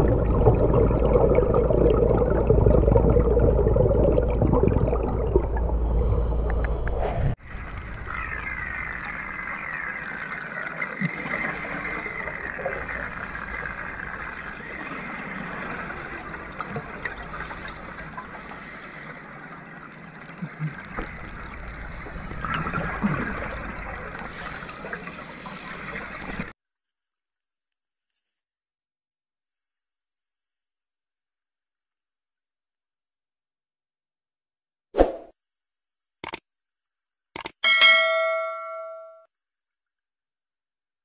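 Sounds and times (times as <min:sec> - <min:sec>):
underwater air and bubbles rushing: 0:00.0 - 0:26.5
regulator breathing hiss: 0:17.3 - 0:20.0, 0:24.3 - 0:26.3.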